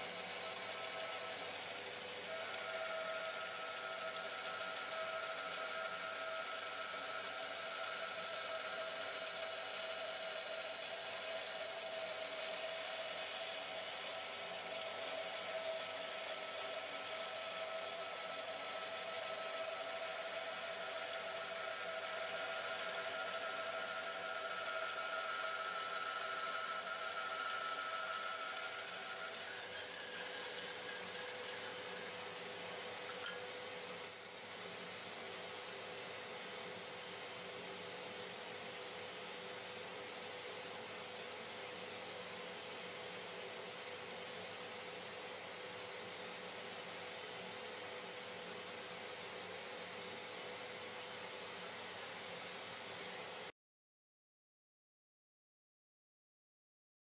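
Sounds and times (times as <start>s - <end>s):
band saw cutting wood: 0.0s - 33.4s.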